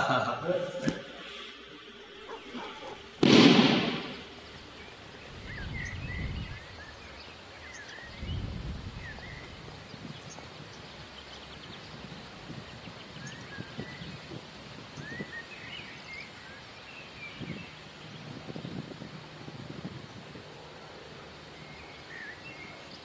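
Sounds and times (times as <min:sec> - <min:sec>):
small birds chirping: 0:01.2 - 0:23.0
sudden loud noise: 0:02.5 - 0:04.4.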